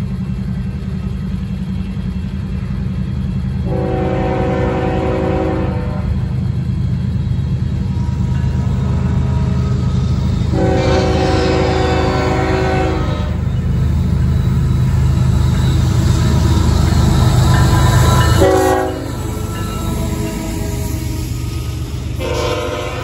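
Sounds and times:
diesel locomotive rumble: 0.0 - 23.0
locomotive air horn blasts: 3.6 - 6.3, 10.5 - 13.5, 17.9 - 19.5, 22.2 - 23.0.

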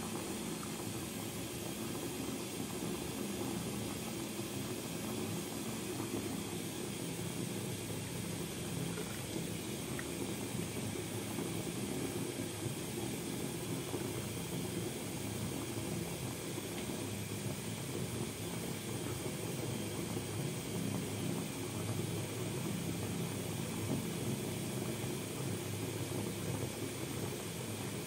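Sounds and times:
water pouring into bathtub: 6.1 - 18.8.

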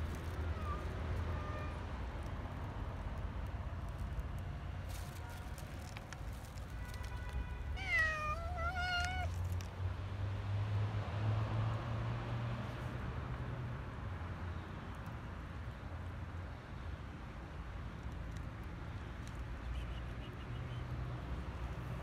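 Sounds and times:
cat meowing: 0.5 - 1.8, 7.7 - 9.4.

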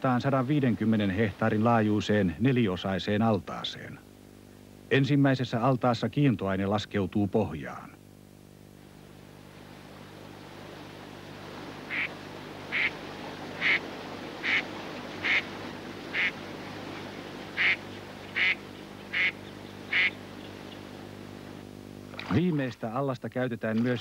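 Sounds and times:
low hum: 7.3 - 22.4
duck quacking: 11.8 - 13.0, 13.6 - 15.5, 16.1 - 16.4, 17.6 - 20.2.

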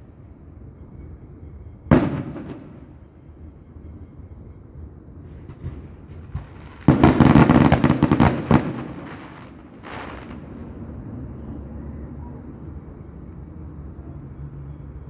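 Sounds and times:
fireworks crackling bangs: 1.9 - 3.0, 5.3 - 10.6
firework hiss: 5.3 - 10.6.

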